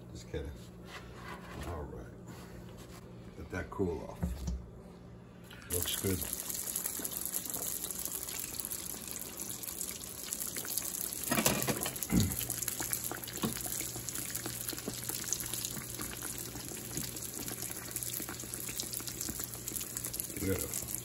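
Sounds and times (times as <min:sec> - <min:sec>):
food deep-frying in oil: 0:05.7 - 0:21.0.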